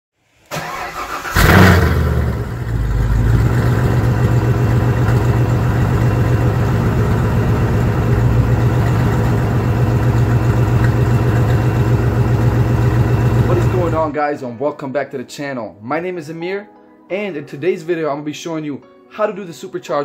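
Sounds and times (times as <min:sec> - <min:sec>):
car engine revving and idling: 0:01.0 - 0:14.1.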